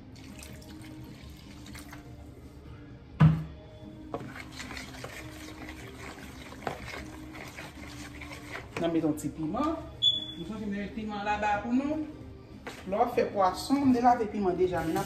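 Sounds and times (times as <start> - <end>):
liquid pouring into plastic bowl: 0.0 - 2.1
jug thumping on counter: 3.2 - 3.5
wooden spoon stirring liquid: 4.0 - 9.8.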